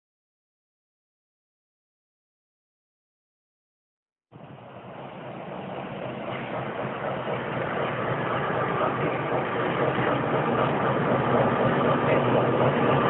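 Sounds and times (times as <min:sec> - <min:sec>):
diesel locomotive engine running: 0:04.3 - 0:13.0.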